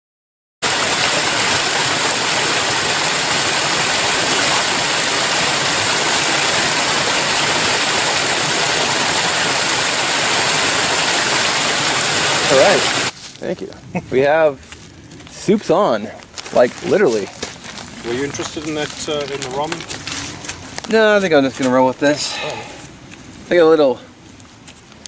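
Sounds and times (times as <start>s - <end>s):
creek rushing over rocks: 0.6s - 13.2s, 16.4s - 22.4s.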